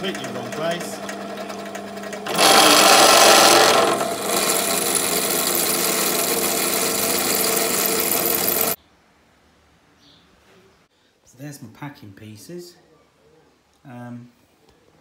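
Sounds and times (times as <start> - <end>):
drill bit grinding through iron: 0.0 - 8.8
drill press motor hum: 0.0 - 8.8.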